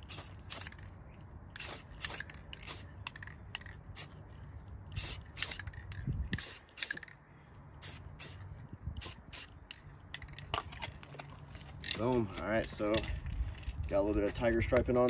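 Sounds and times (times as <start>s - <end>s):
spray-paint can hissing: 0.0s - 0.8s, 1.6s - 3.3s, 3.9s - 4.1s, 4.9s - 7.1s, 7.8s - 9.5s.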